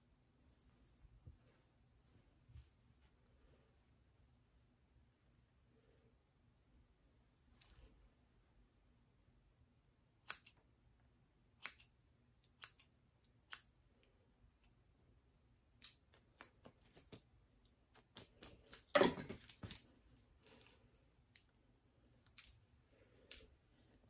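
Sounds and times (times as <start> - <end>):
scissors snipping hair: 10.2 - 10.7, 11.5 - 14.8, 15.8 - 17.3, 22.2 - 22.6.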